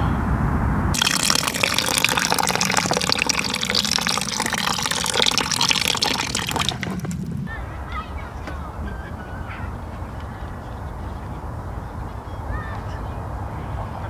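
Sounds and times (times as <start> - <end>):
water pouring into stew: 1.0 - 7.5.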